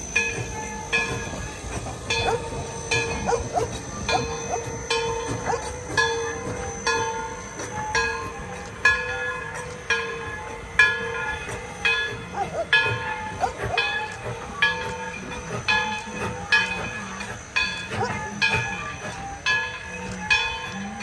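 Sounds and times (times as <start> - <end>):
steam locomotive bell ringing: 0.0 - 21.0.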